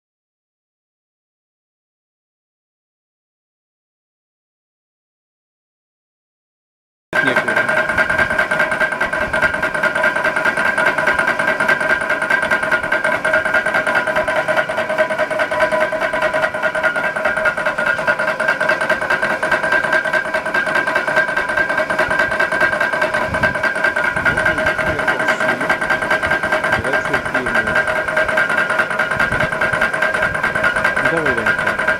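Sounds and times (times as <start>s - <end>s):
constant whine: 7.2s - 31.9s
forge rushing drone: 12.5s - 31.7s.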